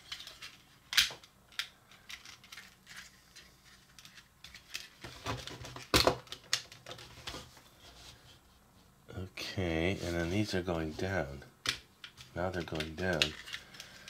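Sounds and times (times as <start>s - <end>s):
plastic toy parts clicking: 0.1s - 5.0s, 11.6s - 14.0s.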